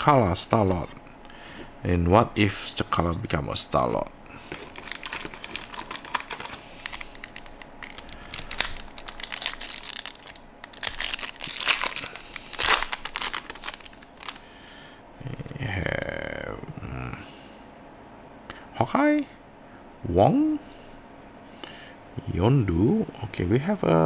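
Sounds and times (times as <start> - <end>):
cards being handled: 4.5 - 14.4
foil wrapper crinkling and tearing: 4.5 - 14.5.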